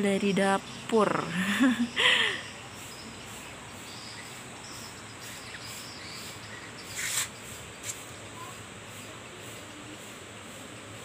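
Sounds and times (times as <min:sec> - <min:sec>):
insect chirping: 0:00.0 - 0:10.2
brief rustle: 0:06.9 - 0:08.1.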